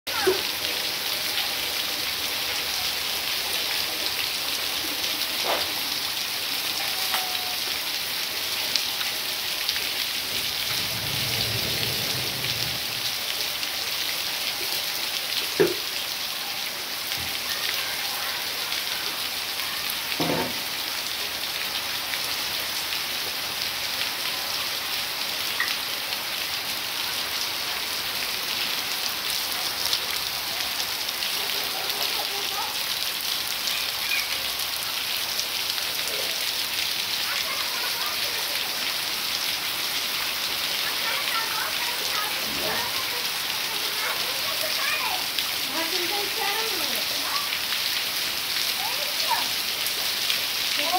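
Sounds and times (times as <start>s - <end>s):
heavy rain on concrete and roofs: 0.0s - 50.9s.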